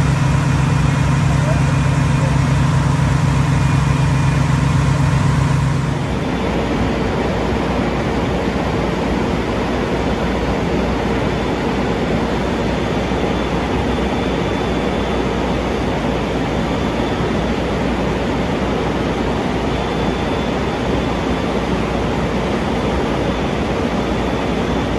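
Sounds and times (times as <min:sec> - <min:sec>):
deep engine drone: 0:00.0 - 0:24.9
fire engine pump running: 0:00.0 - 0:24.9.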